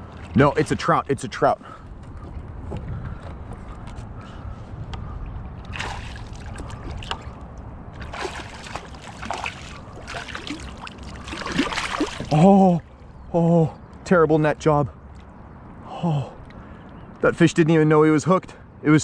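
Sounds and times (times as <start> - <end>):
water splashing and sloshing: 0.0 - 13.2
fish thrashing at surface: 5.7 - 7.4, 8.0 - 12.5.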